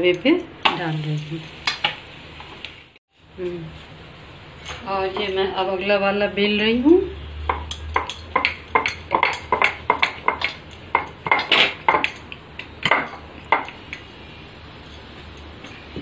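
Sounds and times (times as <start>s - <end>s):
kitchenware knocking on stone board: 7.5s - 13.8s.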